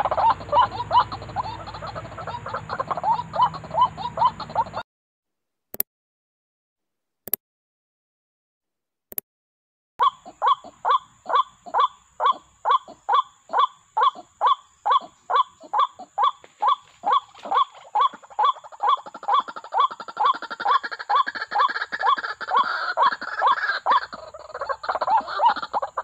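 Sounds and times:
bird calling falling notes: 0:00.0 - 0:04.8, 0:14.9 - 0:26.0.

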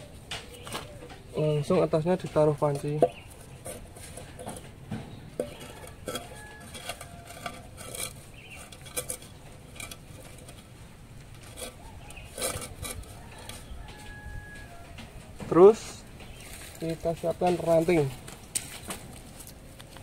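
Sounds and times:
metal pot clanking on bricks: 0:02.4 - 0:10.7.

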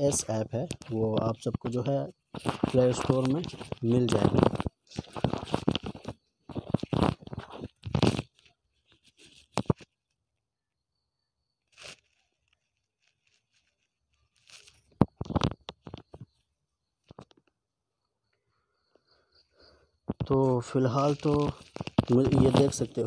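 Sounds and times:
rustling crunching: 0:00.0 - 0:09.9, 0:11.7 - 0:16.3, 0:20.3 - 0:23.0
faint clicks and scrapes: 0:00.0 - 0:10.2, 0:11.6 - 0:23.0.

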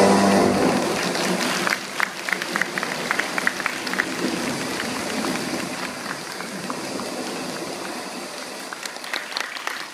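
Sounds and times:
audience applauding: 0:00.1 - 0:09.9
individual loud claps: 0:00.9 - 0:06.6, 0:08.8 - 0:09.9.

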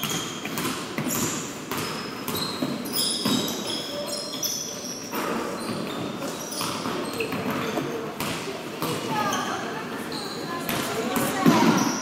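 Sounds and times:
basketball bouncing: 0:00.0 - 0:03.7, 0:05.1 - 0:09.2
sneakers squeaking: 0:00.0 - 0:12.0.

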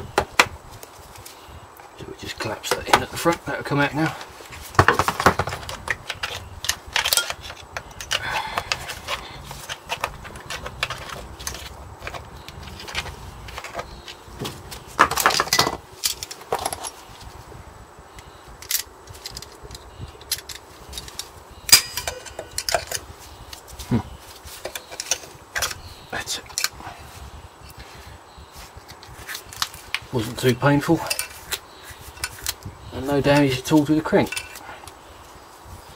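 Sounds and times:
screwdriver clicking and scraping metal: 0:05.7 - 0:14.2, 0:18.2 - 0:23.7, 0:24.5 - 0:25.8, 0:31.0 - 0:32.7, 0:33.3 - 0:34.6.

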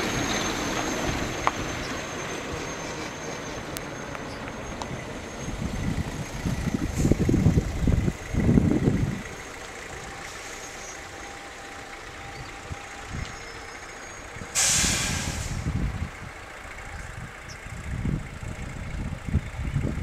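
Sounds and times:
wind buffeting microphone: 0:04.2 - 0:10.2, 0:14.2 - 0:20.0
sudden loud hiss: 0:14.5 - 0:15.8.

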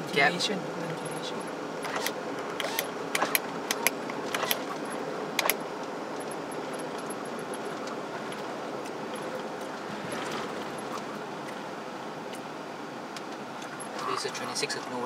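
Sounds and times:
road and engine noise inside car: 0:00.0 - 0:15.0
sharp clicks and rattles: 0:01.2 - 0:11.6.

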